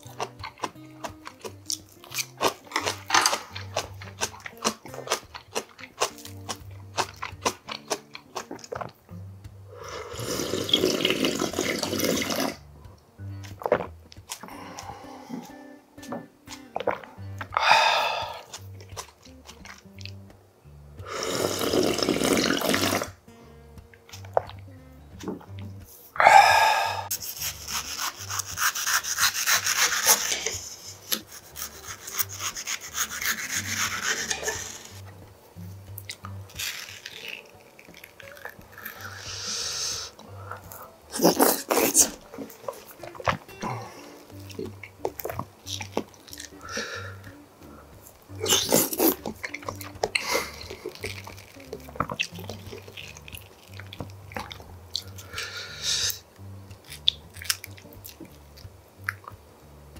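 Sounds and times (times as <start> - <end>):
wet mouth clicks: 0.0 - 9.0, 13.4 - 20.2, 21.0 - 23.2, 25.2 - 35.1, 35.9 - 59.4
person slurping broth: 9.7 - 12.7, 16.8 - 18.7, 21.0 - 23.2, 26.2 - 35.0, 38.2 - 44.8, 45.8 - 56.2
knife slicing through mango: 27.1 - 35.0.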